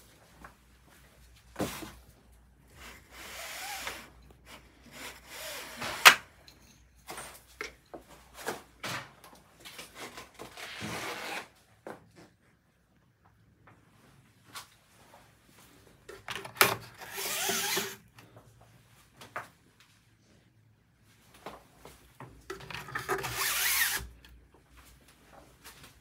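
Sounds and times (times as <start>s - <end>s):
fabric blinds sliding: 2.8s - 6.3s, 16.2s - 18.2s, 22.5s - 24.2s.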